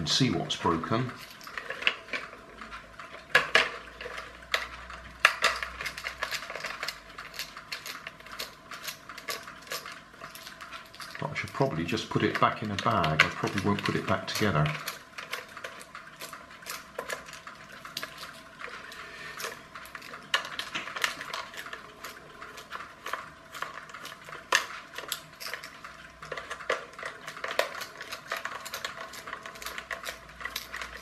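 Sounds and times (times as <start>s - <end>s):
plastic toy being handled: 0.0s - 31.0s.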